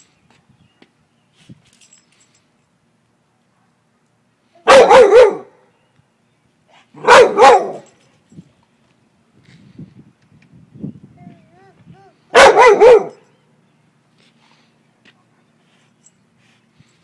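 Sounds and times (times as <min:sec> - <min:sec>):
dog barking: 0:04.6 - 0:05.6, 0:07.0 - 0:07.9, 0:12.3 - 0:13.2.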